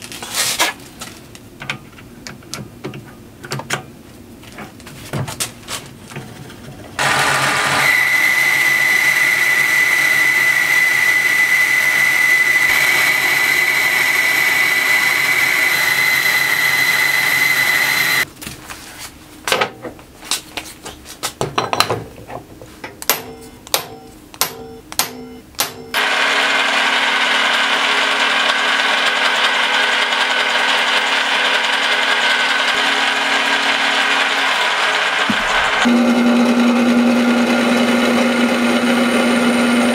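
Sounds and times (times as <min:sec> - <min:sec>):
drill boring steel: 0:07.0 - 0:18.3, 0:26.0 - 0:39.9
metal lathe whining: 0:07.0 - 0:18.3, 0:26.0 - 0:39.9.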